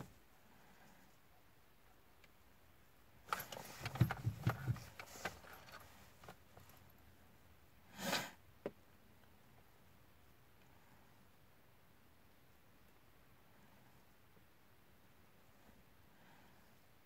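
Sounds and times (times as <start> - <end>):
starter motor clicks and thumps: 3.3 - 5.8.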